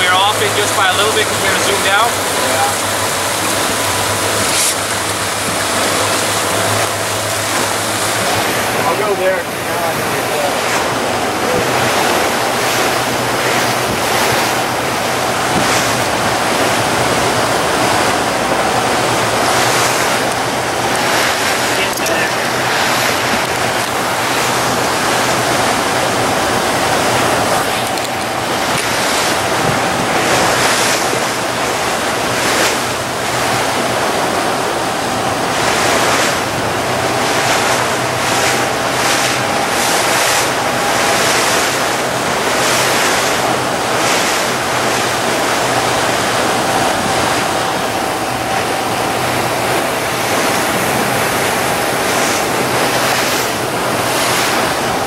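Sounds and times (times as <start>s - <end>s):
boat engine drone: 0.0s - 55.0s
spray rushing as hull slaps waves: 0.0s - 55.0s
wind buffeting microphone: 0.0s - 55.0s.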